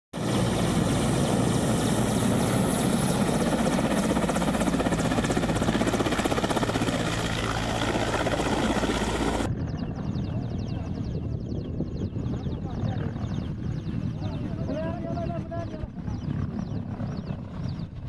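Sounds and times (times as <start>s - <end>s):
helicopter rotor beat: 0.1s - 18.0s
helicopter turbine noise: 0.1s - 18.0s.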